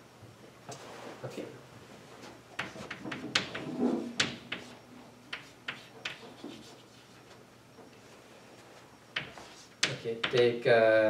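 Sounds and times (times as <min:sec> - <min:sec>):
chalk tapping and scratching: 0:02.6 - 0:07.4, 0:09.2 - 0:10.5.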